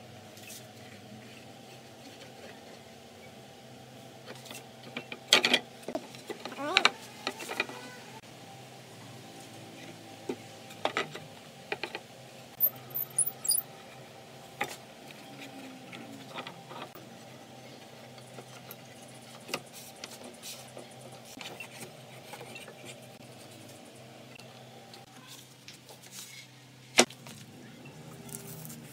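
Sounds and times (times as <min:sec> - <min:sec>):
metal clamps clinking: 0:12.6 - 0:13.6.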